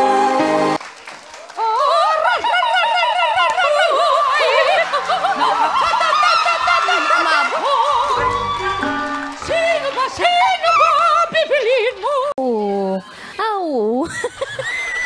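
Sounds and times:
backing music: 0:07.6 - 0:11.5.

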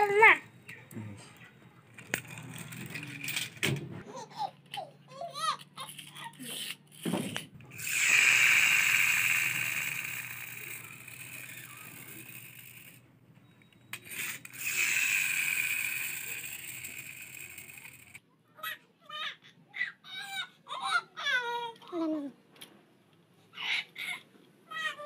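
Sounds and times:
toy wheels whirring: 0:01.8 - 0:18.2
toy clicks: 0:01.9 - 0:03.6, 0:04.6 - 0:13.0, 0:13.6 - 0:18.2.

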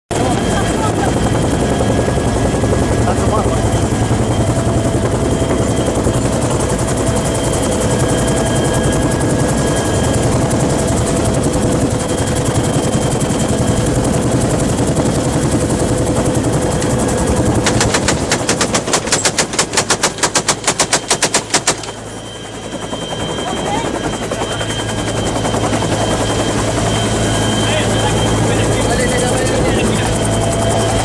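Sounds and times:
helicopter engine and rotor: 0:00.1 - 0:31.0
machine gun rapid fire: 0:17.4 - 0:22.0.

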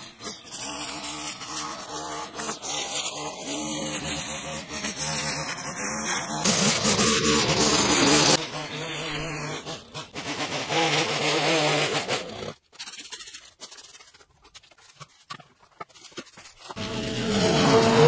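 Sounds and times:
low drone: 0:16.8 - 0:18.0.

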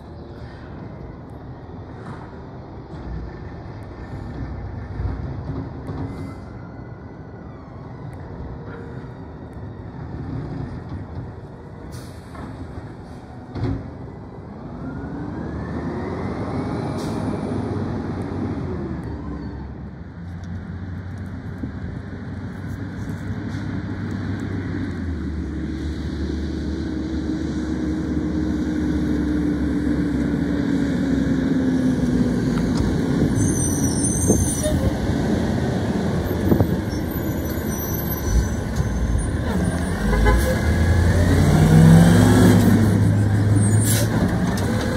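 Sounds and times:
garbage truck engine: 0:27.8 - 0:44.9
truck brakes squealing: 0:33.2 - 0:35.2, 0:36.2 - 0:41.3, 0:42.6 - 0:44.9.

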